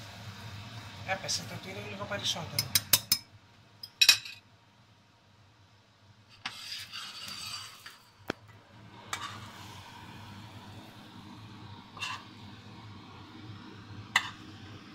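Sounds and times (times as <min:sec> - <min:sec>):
scraping in a pan: 0:06.3 - 0:08.2, 0:09.1 - 0:09.8, 0:11.9 - 0:12.4, 0:14.2 - 0:14.4.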